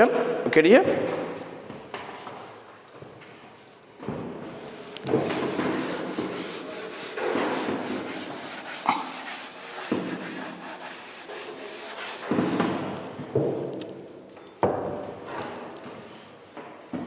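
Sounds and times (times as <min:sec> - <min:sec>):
duster rubbing on chalkboard: 0:05.0 - 0:12.9.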